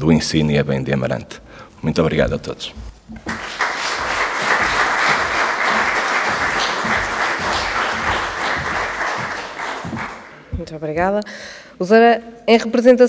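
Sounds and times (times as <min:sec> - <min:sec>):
audience applauding: 0:03.2 - 0:10.5.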